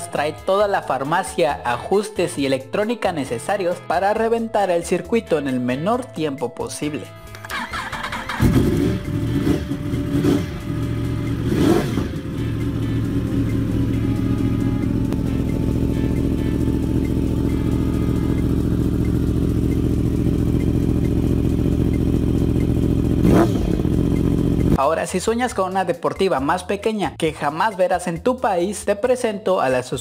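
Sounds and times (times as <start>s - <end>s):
motorcycle engine revving: 7.3s - 24.8s
motorcycle engine idling: 7.4s - 24.8s.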